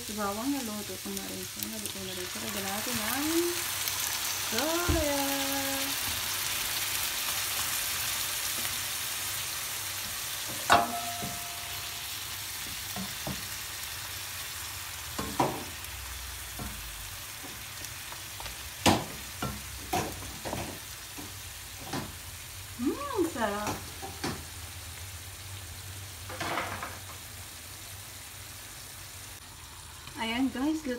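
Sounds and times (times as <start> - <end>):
food sizzling in frying pan: 0.0 - 30.9
wooden spatula knocking pan: 10.5 - 11.6.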